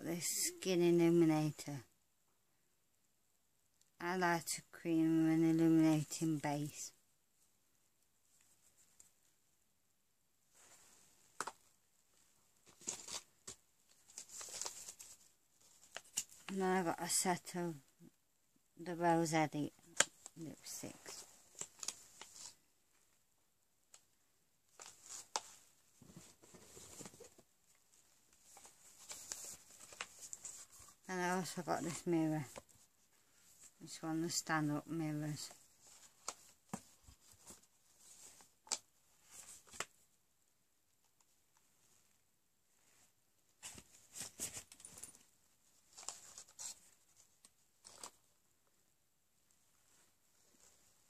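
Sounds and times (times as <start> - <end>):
plastic packaging rustling: 12.6 - 16.5, 28.3 - 31.0.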